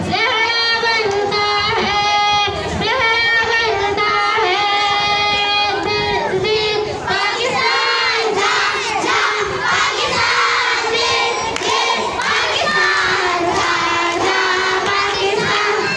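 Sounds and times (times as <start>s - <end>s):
girl singing into microphone: 0.0s - 11.4s
children shouting and cheering: 4.2s - 15.9s.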